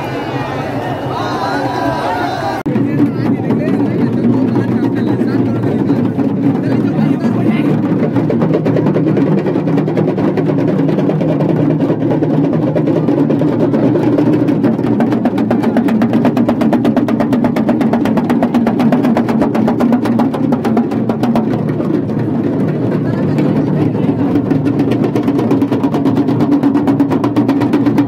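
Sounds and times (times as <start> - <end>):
drums beaten in fast rolls: 0.0 - 28.0.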